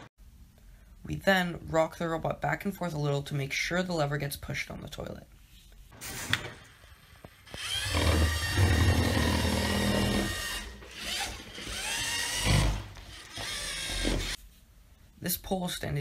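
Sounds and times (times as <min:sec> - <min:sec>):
robot motors and gears whirring: 0:07.5 - 0:14.4.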